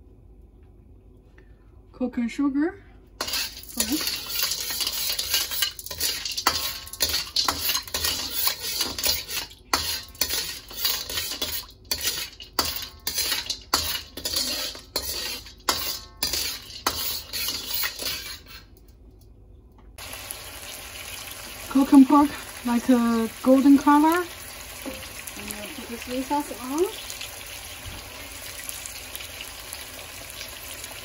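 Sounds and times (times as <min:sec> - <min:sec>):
metal ladle scraping a wok: 0:03.2 - 0:18.7.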